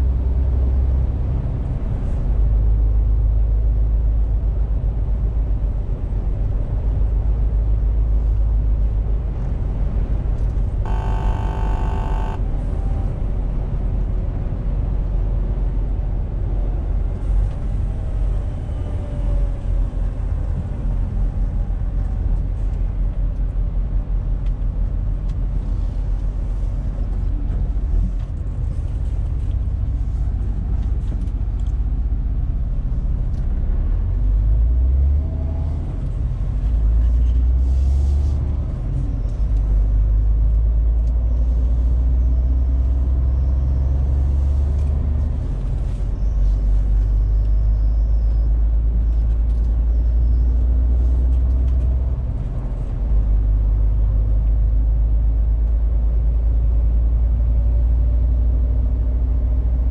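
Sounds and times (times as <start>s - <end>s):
truck diesel engine drone: 0.0s - 23.1s.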